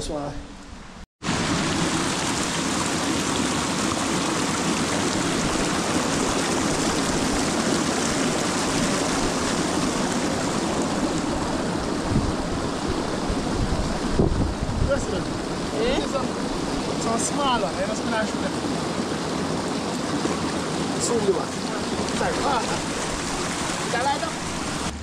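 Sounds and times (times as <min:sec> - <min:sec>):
running water rushing: 0:01.2 - 0:25.0
low bumps: 0:24.3 - 0:25.0.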